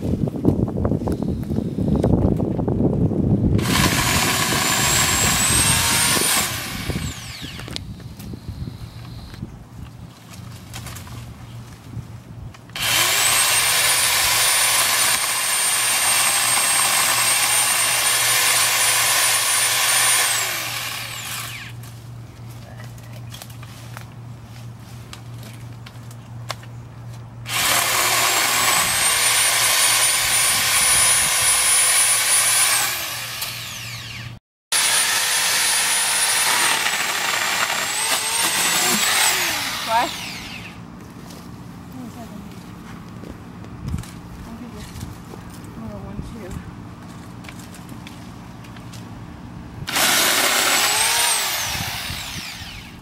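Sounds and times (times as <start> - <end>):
electric chainsaw whining: 3.6 - 7.8, 12.7 - 21.8, 27.5 - 40.8, 49.8 - 53.0.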